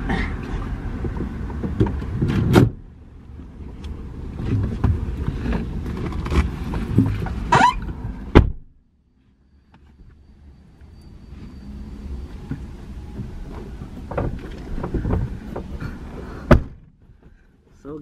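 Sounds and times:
rustling inside a car: 0.0s - 18.0s
loud sharp thump: 8.3s - 8.7s, 16.5s - 16.9s.

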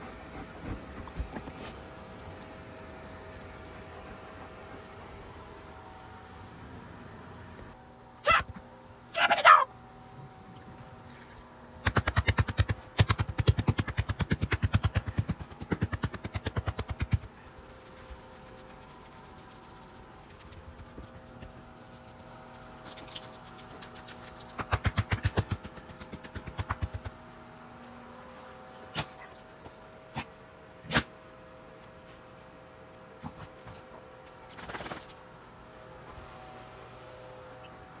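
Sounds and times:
faint steady hum: 0.0s - 38.0s
rattle of quick clicks: 34.5s - 35.2s.

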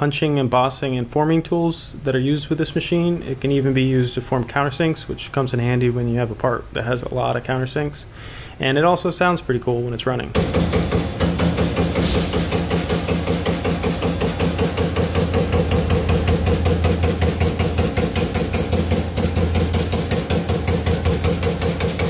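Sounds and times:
steady machine hum: 10.3s - 22.0s
punch press strokes: 10.4s - 22.0s.

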